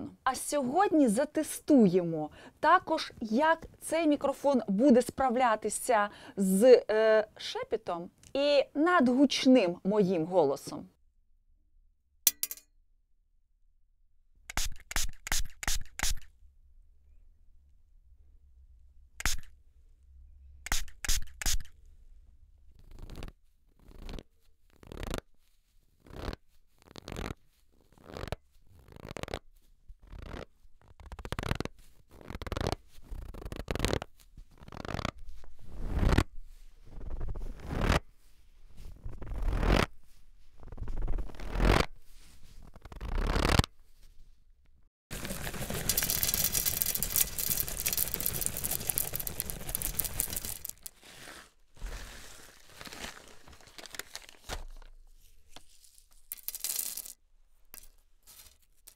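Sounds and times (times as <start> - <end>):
spray bottle spritzing: 14.5 - 16.3, 19.2 - 19.5, 20.7 - 21.7, 45.2 - 50.9
seeds pouring onto glass: 45.1 - 51.0, 56.3 - 57.2
starch bag crunching: 45.1 - 55.0.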